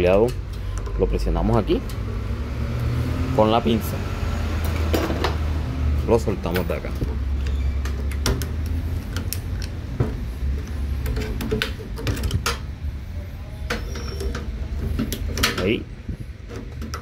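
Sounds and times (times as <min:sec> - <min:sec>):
steady low hum: 0:00.0 - 0:17.0
pliers clicking on wire connectors: 0:06.4 - 0:09.9.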